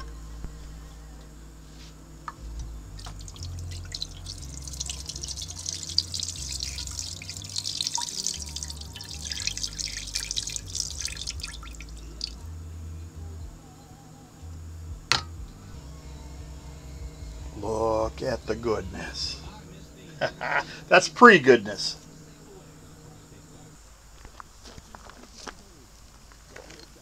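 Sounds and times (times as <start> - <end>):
broth splashing into pot: 3.0 - 12.4.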